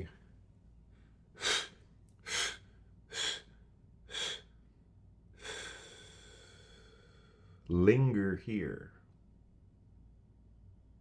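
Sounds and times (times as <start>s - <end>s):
man blowing out breath: 1.4s - 3.5s, 4.1s - 4.5s, 5.4s - 7.6s.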